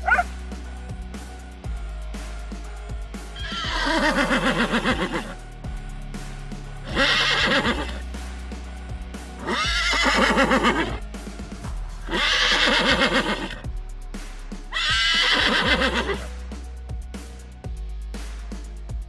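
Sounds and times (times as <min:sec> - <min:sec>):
background music: 0:00.0 - 0:19.0
horse whinnying: 0:03.4 - 0:05.3, 0:06.9 - 0:08.0, 0:09.4 - 0:11.0, 0:12.1 - 0:13.6, 0:14.7 - 0:16.3.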